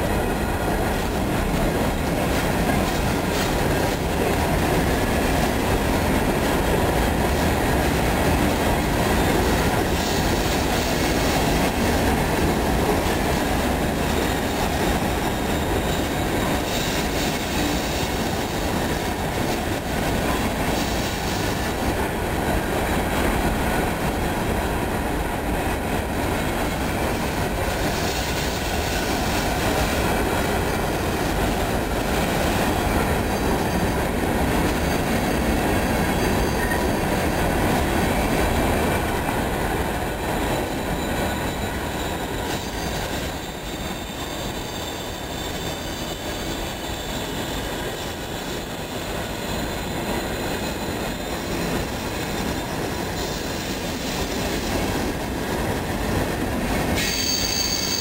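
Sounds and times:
train wheels rumbling on rail: 0.0s - 58.0s
faint wheel squeal: 40.5s - 51.4s, 57.0s - 58.0s.

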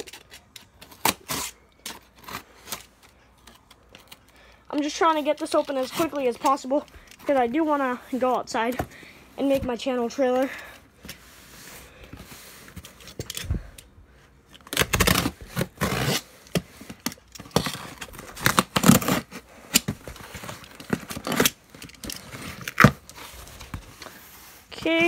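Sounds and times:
knife slicing through packing tape: 0.0s - 2.8s, 14.7s - 16.3s, 17.6s - 19.9s.

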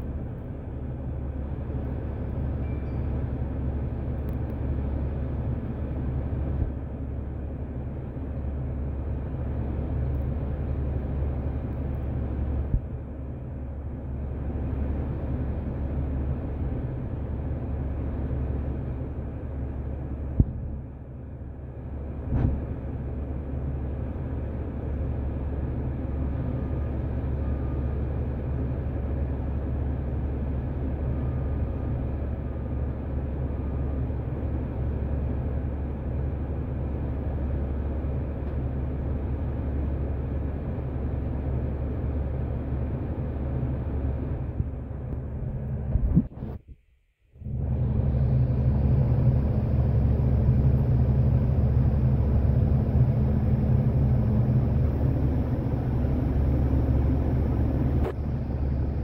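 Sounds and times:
bus engine drone from inside: 0.0s - 59.0s
road noise: 0.0s - 59.0s.

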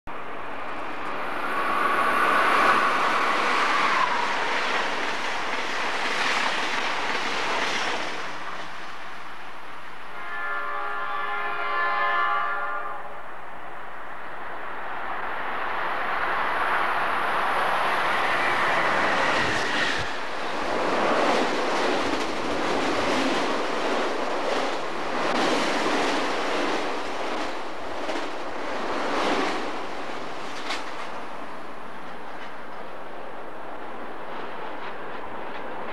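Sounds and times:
passing train rumble: 0.1s - 35.9s
train horn blast: 1.4s - 4.5s, 10.1s - 13.3s.

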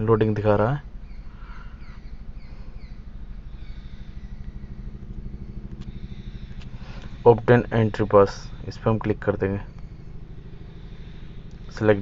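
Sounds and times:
motor humming with flutter: 0.0s - 12.0s.

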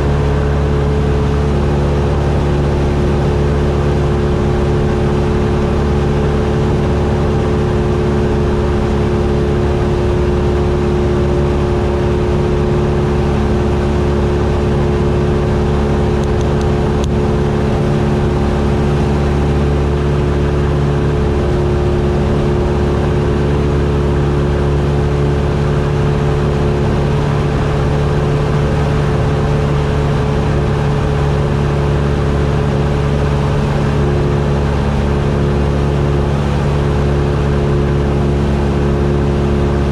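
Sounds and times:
airplane engine droning: 0.0s - 39.9s.

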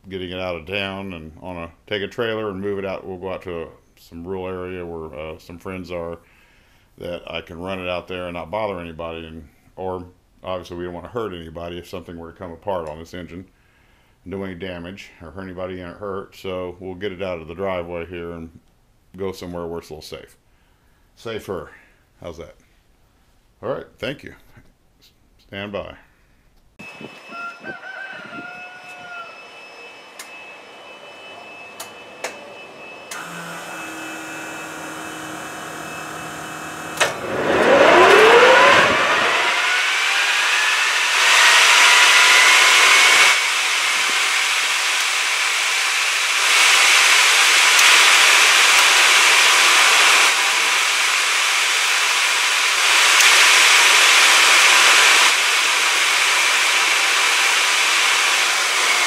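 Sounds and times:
jet engine whine: 26.8s - 59.0s
clicks: 31.8s - 32.5s, 36.9s - 37.2s, 47.8s - 48.0s.

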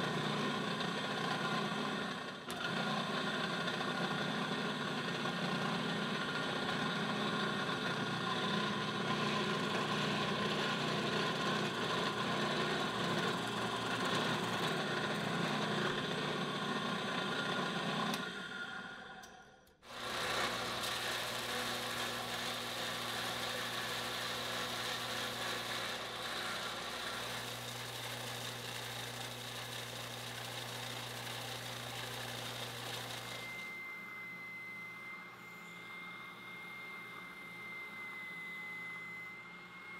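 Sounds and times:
electric power tool running: 0.0s - 18.8s, 19.8s - 39.9s
machine low hum: 31.1s - 39.9s.

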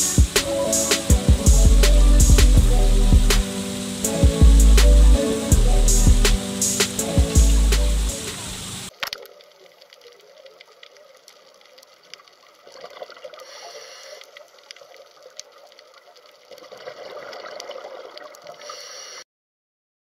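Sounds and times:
underwater water wash: 0.0s - 19.0s
small underwater clicks and crackles: 8.9s - 19.2s.

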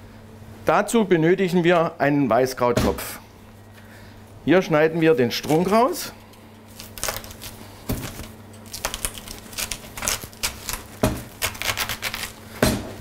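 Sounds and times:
knife crunching through cabbage: 6.6s - 12.5s.

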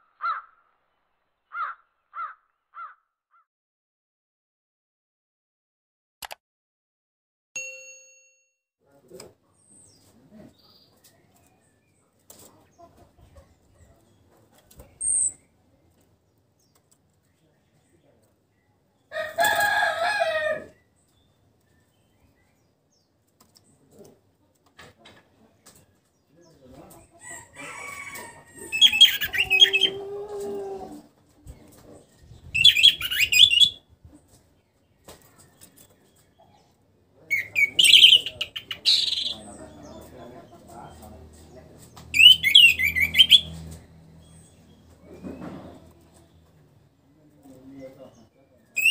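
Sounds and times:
chickens clucking: 9.1s - 15.0s, 23.4s - 33.1s, 34.0s - 42.1s, 42.8s - 46.7s
bird chirping: 9.2s - 19.1s, 31.4s - 48.9s
rooster crowing: 19.1s - 20.8s, 27.2s - 31.0s.

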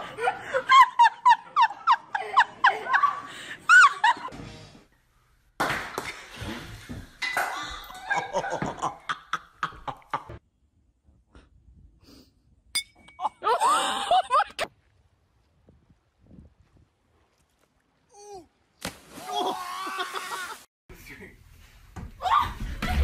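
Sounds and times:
people laughing and shrieking: 19.2s - 20.7s.

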